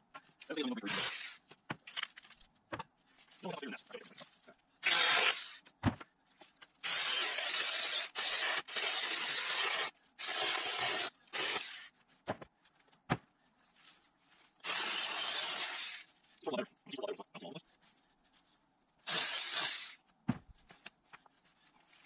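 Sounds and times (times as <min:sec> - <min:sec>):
mini chainsaw cutting branches: 0:00.9 - 0:01.4, 0:04.8 - 0:05.6, 0:06.8 - 0:11.9, 0:14.6 - 0:16.1, 0:19.1 - 0:20.0.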